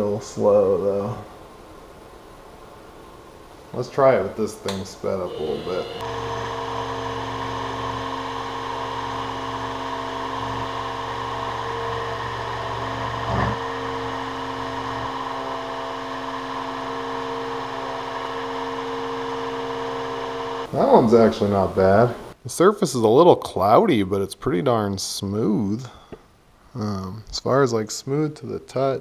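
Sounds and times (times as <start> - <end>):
milling machine hum: 4.7 - 22.4.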